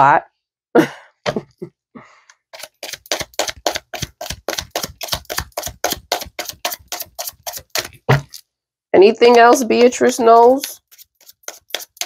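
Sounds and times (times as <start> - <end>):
cards being shuffled: 2.6 - 8.4, 9.3 - 12.0.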